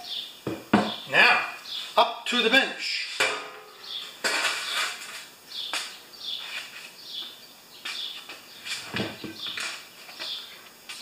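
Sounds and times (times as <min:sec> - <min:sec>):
sharp knocks: 0:03.2 - 0:04.6.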